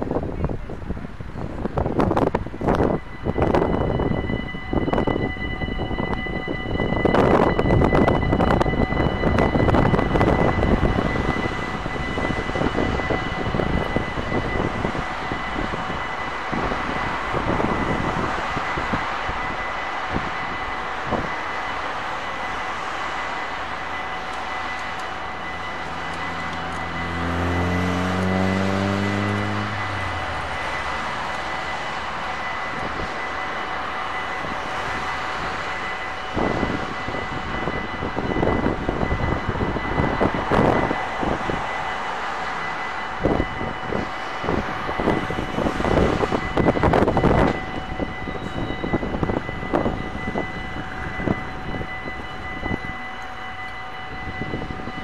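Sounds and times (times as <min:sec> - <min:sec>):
wind rumbling on microphone: 0:00.0 - 0:21.6, 0:34.2 - 0:42.0, 0:43.0 - 0:53.1, 0:54.0 - 0:55.0
level crossing bell ringing: 0:02.8 - 0:55.0.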